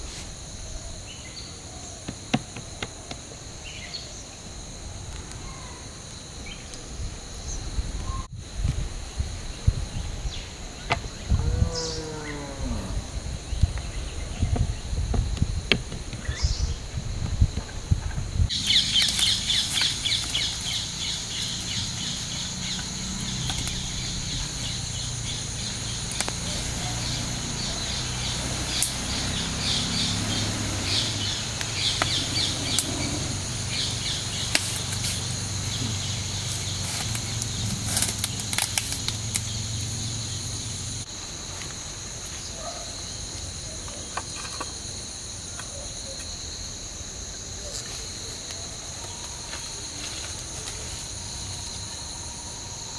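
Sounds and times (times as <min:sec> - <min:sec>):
pulsing insect chorus: 0:00.0 - 0:52.9
falling animal call: 0:11.3 - 0:13.3
wood fire crackling: 0:18.5 - 0:20.8, 0:36.4 - 0:39.5.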